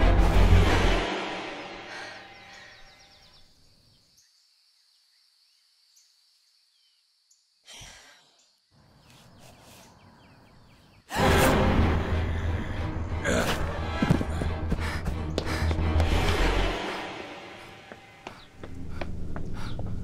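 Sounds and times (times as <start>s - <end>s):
dark horror score: 11.1s - 20.0s
faint heavy breathing: 16.9s - 20.0s.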